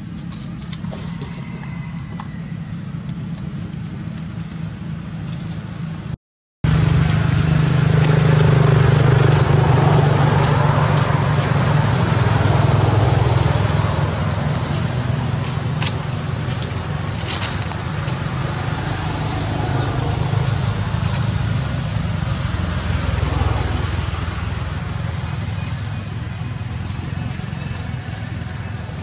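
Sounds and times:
low motor hum: 0:00.0 - 0:29.0.

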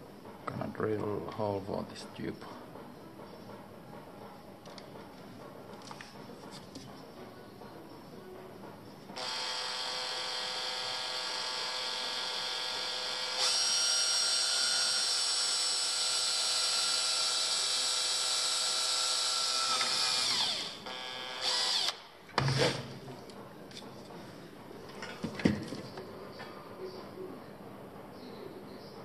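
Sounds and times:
cordless drill drilling: 0:09.2 - 0:22.0.

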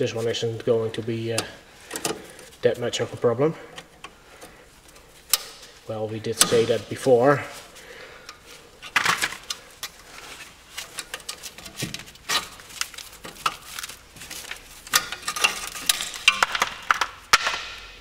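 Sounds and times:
metal tools clicking and scraping: 0:08.2 - 0:18.0.

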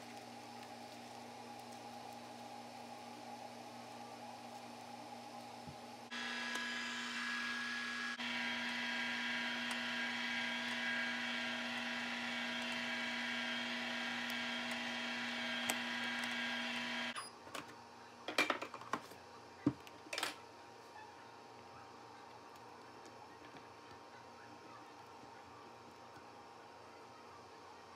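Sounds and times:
ice cream maker motor humming: 0:00.0 - 0:17.2.

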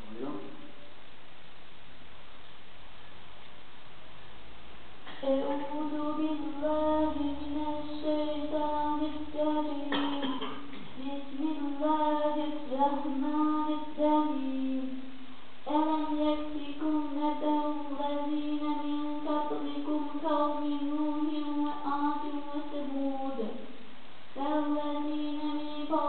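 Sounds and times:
child chanting: 0:05.1 - 0:23.8, 0:24.4 - 0:26.0.

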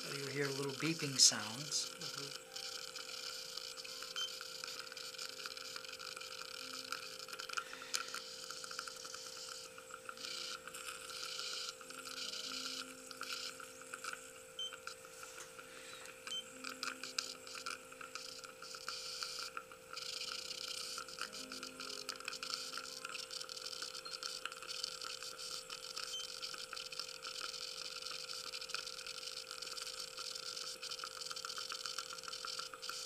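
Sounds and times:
intermittent hiss: 0:00.0 - 0:33.0
steady hum: 0:00.0 - 0:33.0.

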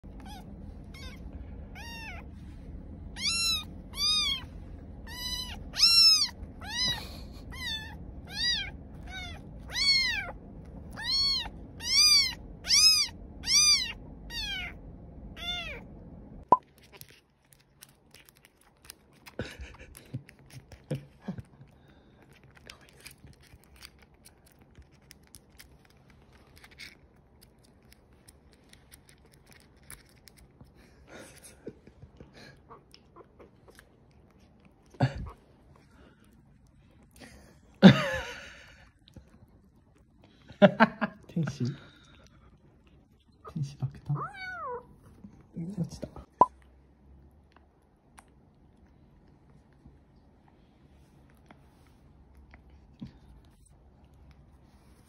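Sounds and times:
kitten meowing loudly: 0:00.2 - 0:02.2, 0:03.2 - 0:10.3, 0:11.0 - 0:14.8.

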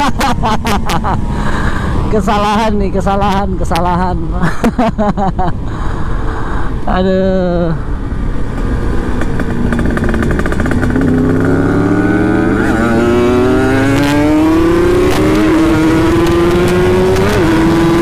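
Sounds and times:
motorcycle engine accelerating: 0:08.5 - 0:18.0.

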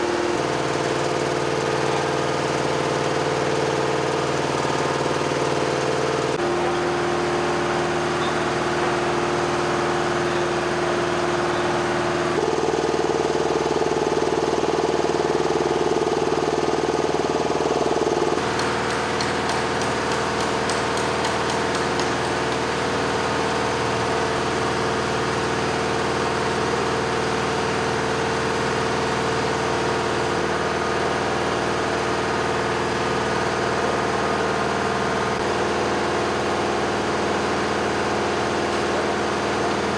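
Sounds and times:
machinery hum: 0:17.6 - 0:28.0.

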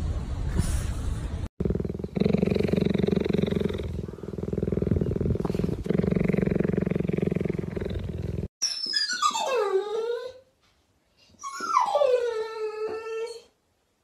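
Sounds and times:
cheetah purring: 0:01.6 - 0:08.5.

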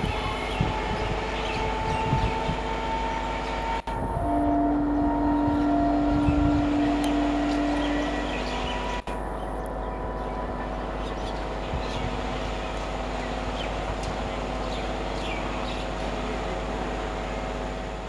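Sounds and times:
electric train hum: 0:00.0 - 0:18.0.

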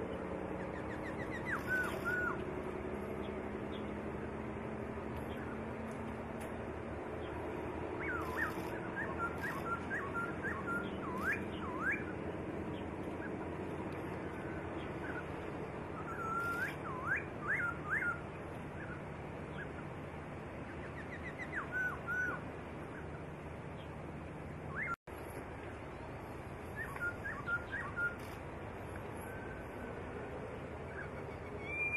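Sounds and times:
low background hum: 0:00.0 - 0:31.9
songbird singing: 0:00.0 - 0:31.9.

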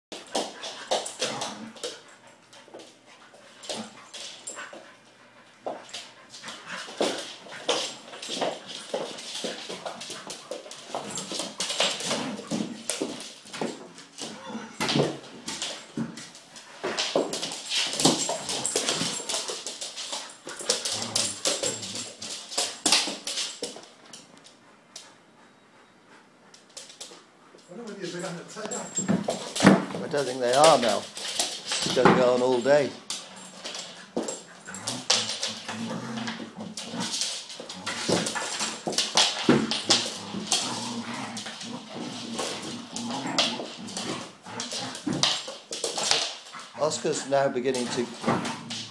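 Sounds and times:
paws scrabbling on hard floor: 0:00.1 - 0:25.2, 0:26.5 - 0:48.9
dogs growling: 0:01.0 - 0:02.0, 0:14.2 - 0:15.0, 0:17.9 - 0:22.4, 0:33.1 - 0:48.9
dogs whining: 0:14.1 - 0:15.0
claws scrabbling on floor: 0:33.0 - 0:46.8.

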